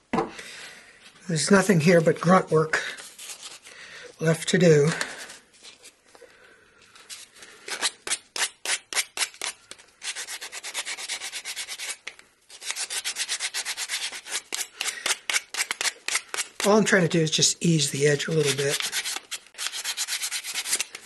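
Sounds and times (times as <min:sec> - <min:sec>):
sandpaper rubbing wood: 0:07.8 - 0:16.7, 0:18.3 - 0:20.9.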